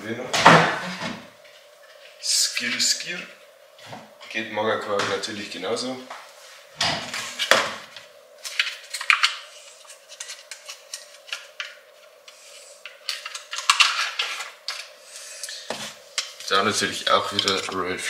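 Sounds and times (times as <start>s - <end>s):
faint steady hum: 0.0s - 18.0s
plastic lid crinkling and scraping: 12.9s - 14.9s.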